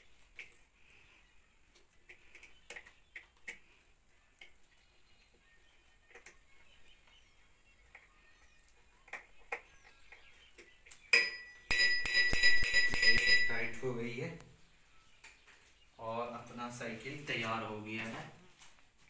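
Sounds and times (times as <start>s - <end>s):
bicycle bell ringing: 11.2s - 13.8s.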